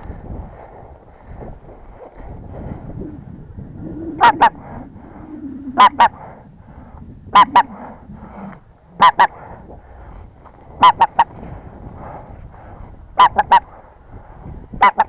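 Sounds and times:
flock of geese calling: 4.1 - 4.7, 5.7 - 6.3, 7.3 - 7.9, 9.0 - 9.4, 10.8 - 11.4, 13.2 - 13.7, 14.8 - 15.0.

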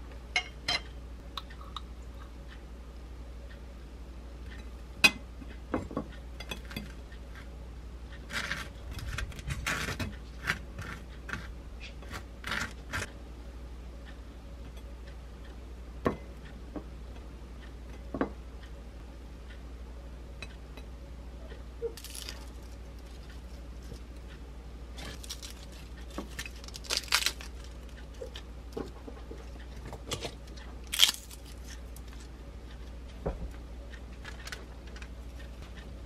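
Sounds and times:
knife scraping toast: 8.3 - 13.1.

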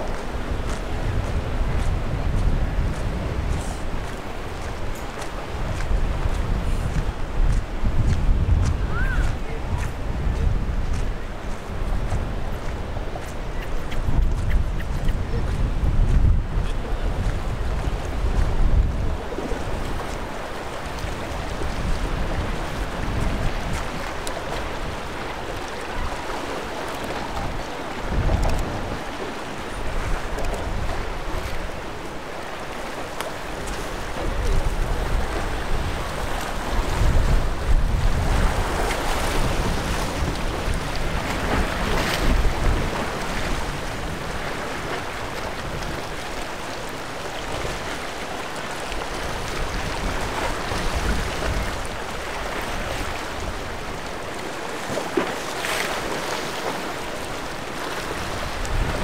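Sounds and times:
choppy water and surf: 0.0 - 59.0
wind gusting against microphone: 0.0 - 59.0.

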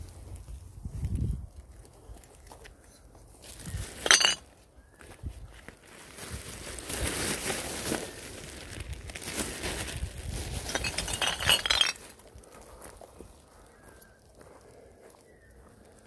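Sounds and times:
plastic rubbish bags rustling: 3.4 - 4.5, 5.4 - 12.2
rubbish clinking inside bags: 3.5 - 4.5, 6.1 - 12.1.

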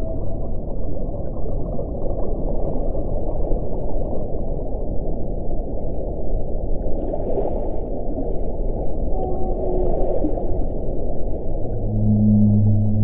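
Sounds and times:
low underwater rushing: 0.0 - 13.0.

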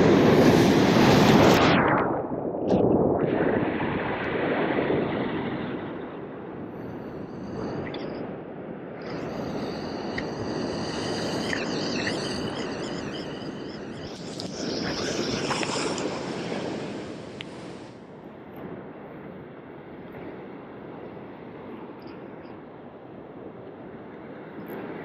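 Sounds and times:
high wavering whine: 0.0 - 4.5, 5.4 - 19.1.

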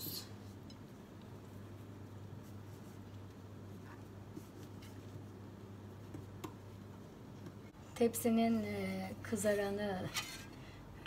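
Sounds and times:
steady low hum: 0.0 - 11.0
hands pressing dough: 2.3 - 7.6.

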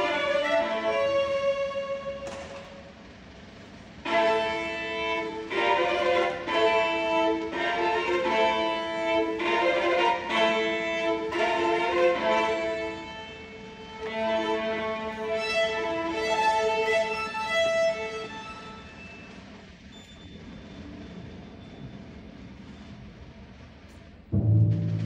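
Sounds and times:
orchestra strings bowing: 0.0 - 3.0, 4.0 - 19.2.

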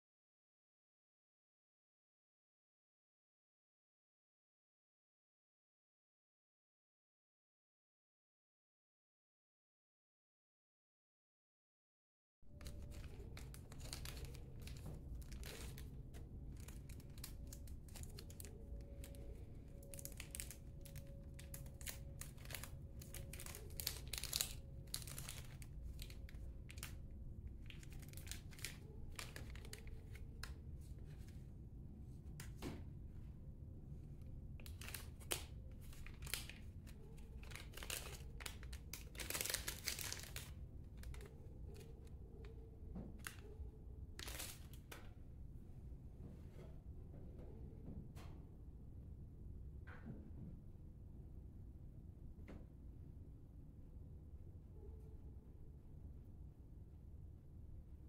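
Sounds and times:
low steady hum: 12.5 - 58.0
plastic bag crinkling: 12.6 - 27.0, 27.6 - 30.5, 34.6 - 42.1, 44.2 - 44.8.

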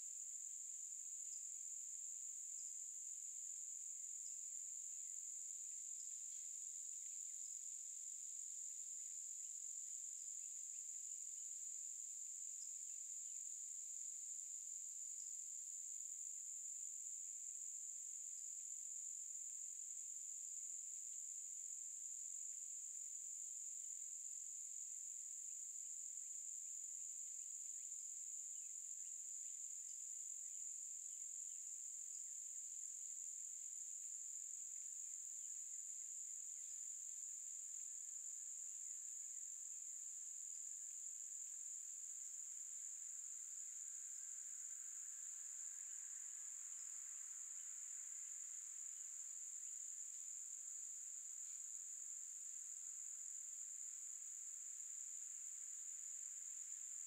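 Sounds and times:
insects trilling: 40.3 - 57.0.

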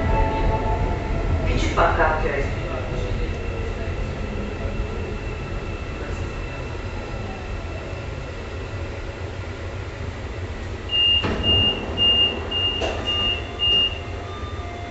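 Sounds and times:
metro train rumbling: 0.0 - 14.9
high electronic warning beep: 10.9 - 14.9.

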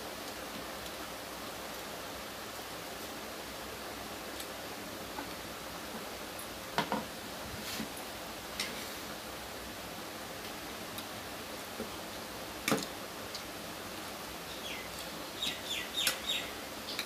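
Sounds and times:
steady background hiss: 0.0 - 17.0
quiet eating: 12.7 - 16.3.

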